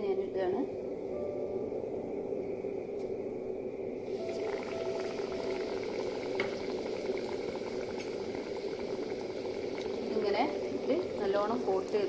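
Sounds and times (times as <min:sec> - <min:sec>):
hot oil sizzling and crackling: 0:04.0 - 0:12.0.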